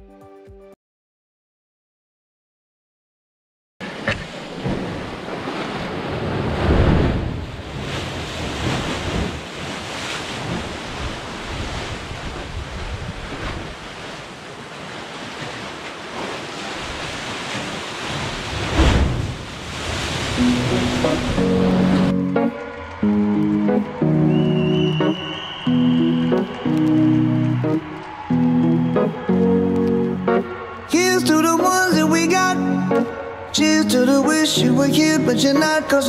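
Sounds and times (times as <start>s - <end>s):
surf churning in rock chasm: 3.8s - 27.1s, 30.4s - 36.0s
wind noise on microphone: 6.4s - 14.1s.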